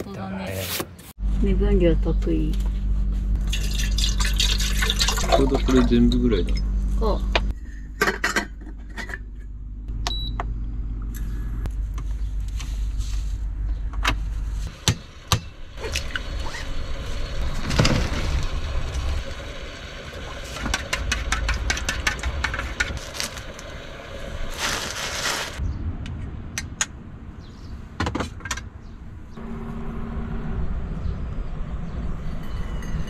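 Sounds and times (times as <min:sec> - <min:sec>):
low hum: 0:01.2 - 0:27.4, 0:29.0 - 0:33.0.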